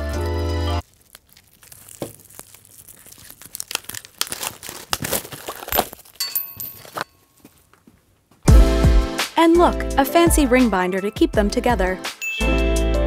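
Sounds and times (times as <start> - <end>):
paper packaging tearing and crinkling: 0.0 - 6.2.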